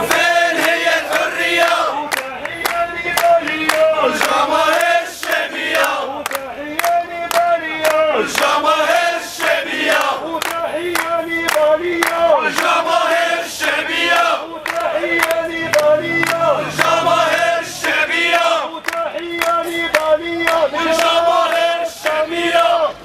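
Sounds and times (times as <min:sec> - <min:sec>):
crowd chanting in unison: 0:00.0 - 0:23.0
man shouting through megaphone: 0:01.9 - 0:04.2, 0:06.1 - 0:08.4, 0:10.2 - 0:12.6, 0:14.9 - 0:16.8.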